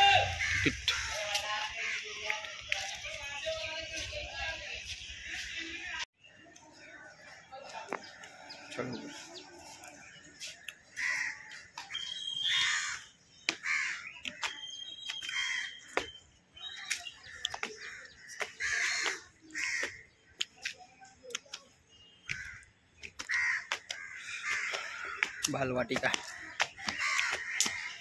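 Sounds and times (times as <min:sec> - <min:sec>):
crows cawing: 0:00.2 - 0:02.2, 0:10.8 - 0:11.7, 0:12.4 - 0:14.2, 0:15.3 - 0:16.0, 0:17.2 - 0:20.1, 0:22.3 - 0:28.0.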